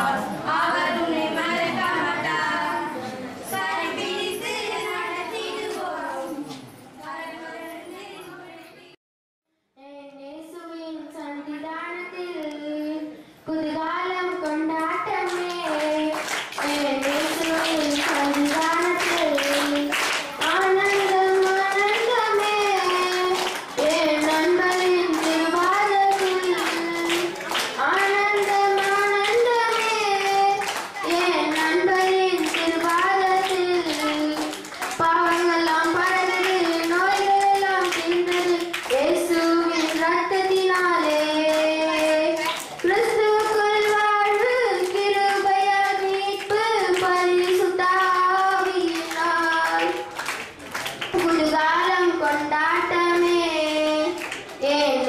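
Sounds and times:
woman singing: 13.6s - 50.1s
hand-clapping: 14.4s - 55.0s.

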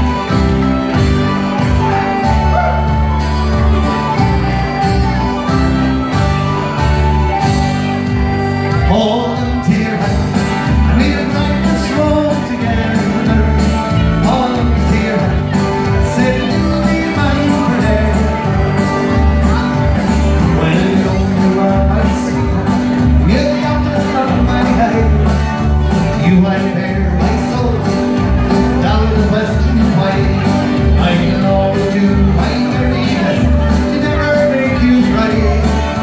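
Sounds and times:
live band over speakers: 0.0s - 36.0s.

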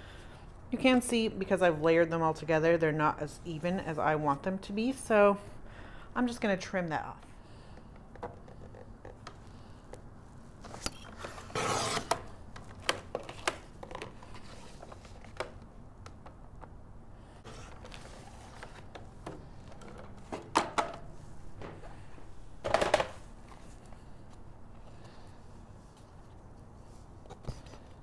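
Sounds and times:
cardstock cutting strokes: 11.4s - 12.2s.

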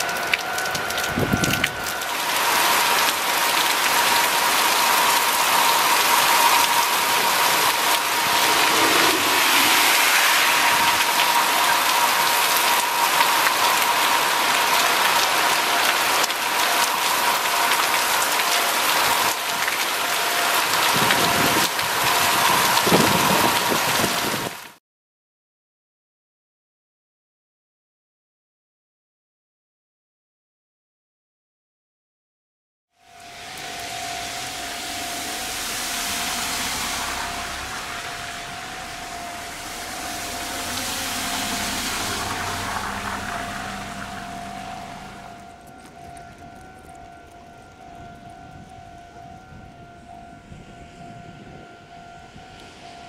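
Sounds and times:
heavy rain pouring: 0.0s - 24.8s, 33.0s - 49.3s.

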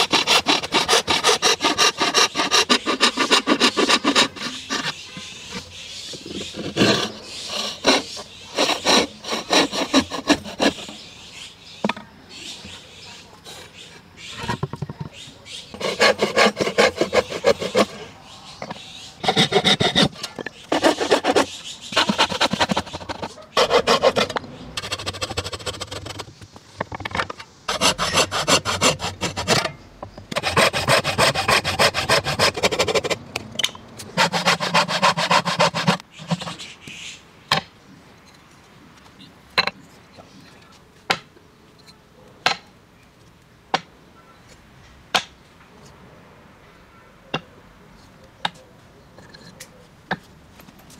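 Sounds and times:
hand saw cutting wood: 0.0s - 5.0s, 6.5s - 11.0s, 15.8s - 18.0s, 19.2s - 26.3s, 27.7s - 29.7s, 30.3s - 33.2s, 34.0s - 36.6s.

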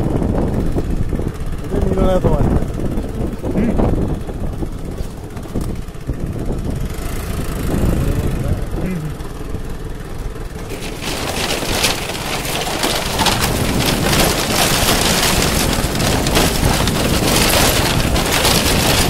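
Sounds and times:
tyres clattering on bamboo: 10.5s - 19.0s.

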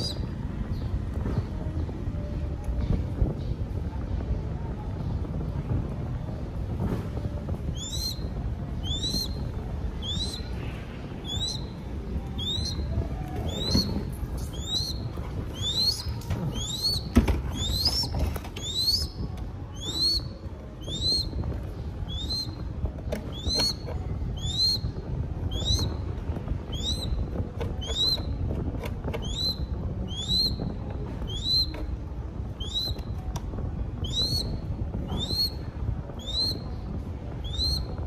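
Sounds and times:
hawk chick squealing: 7.8s - 8.2s, 8.8s - 9.4s, 10.0s - 10.5s, 11.2s - 11.7s, 12.4s - 12.9s, 13.5s - 19.2s, 19.8s - 21.3s, 22.1s - 22.6s, 23.3s - 24.8s, 25.5s - 25.9s, 26.7s - 27.2s, 27.8s - 28.3s, 29.2s - 30.6s, 31.2s - 31.7s, 32.6s - 33.0s, 34.0s - 35.6s, 36.2s - 36.6s, 37.4s - 38.0s.

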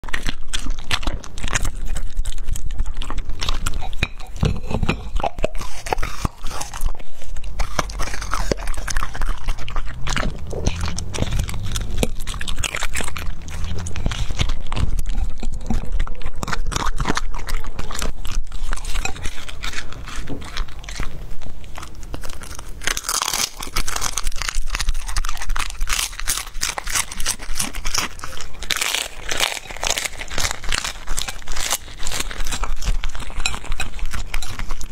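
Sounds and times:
dog crunching prawn shell: 0.0s - 34.9s.

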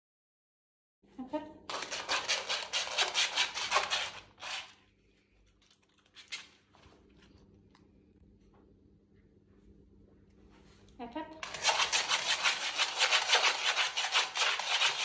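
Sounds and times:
dog paws scratching grip tape: 1.7s - 4.8s, 5.6s - 6.7s, 11.4s - 15.0s.

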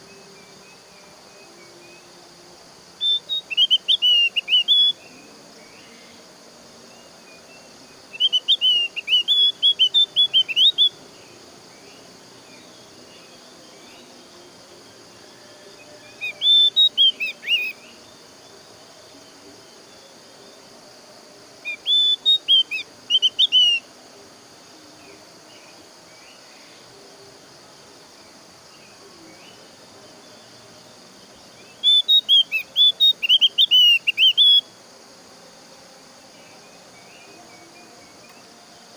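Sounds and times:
insects hissing: 0.0s - 38.9s
bird chirping whistled song: 3.0s - 5.1s, 8.1s - 10.9s, 16.0s - 17.9s, 21.6s - 23.9s, 31.6s - 34.7s.

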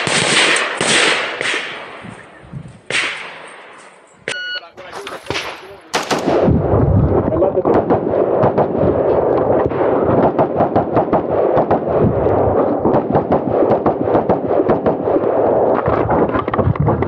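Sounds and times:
rifle firing rapid shots: 0.0s - 2.3s, 2.9s - 3.5s, 5.2s - 6.5s, 7.7s - 15.6s.

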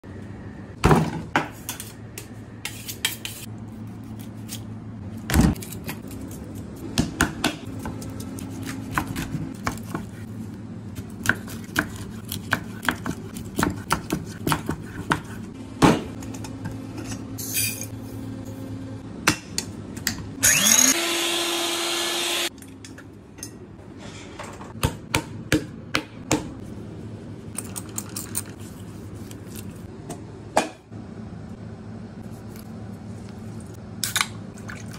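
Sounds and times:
low kitchen hum: 0.0s - 34.9s
knife chopping on wooden board: 11.2s - 16.1s
small electric motor whine: 20.4s - 22.5s.

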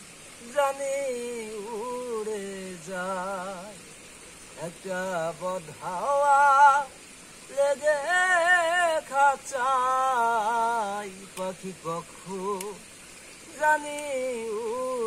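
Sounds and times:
man singing unaccompanied: 0.4s - 15.0s.

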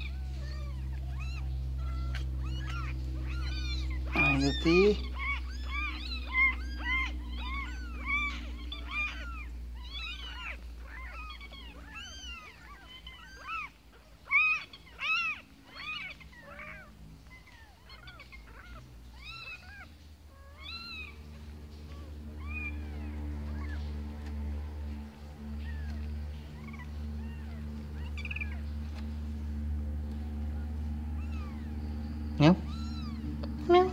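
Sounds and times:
kittens mewing: 0.0s - 33.9s.

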